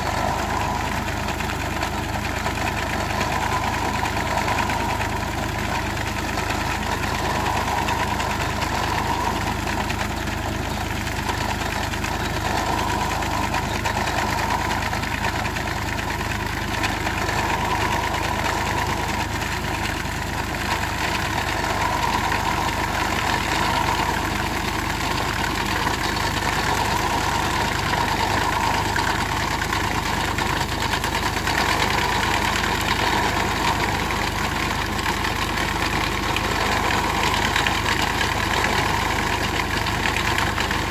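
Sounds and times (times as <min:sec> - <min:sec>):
tractor diesel engine under load: 0:00.0 - 0:40.9.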